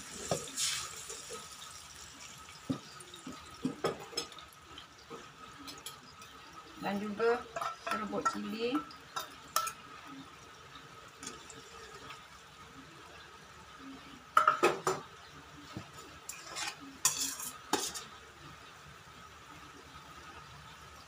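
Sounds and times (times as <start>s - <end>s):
faint hiss from stove: 0.0s - 21.0s
metal spoon scraping a dish: 16.3s - 18.1s.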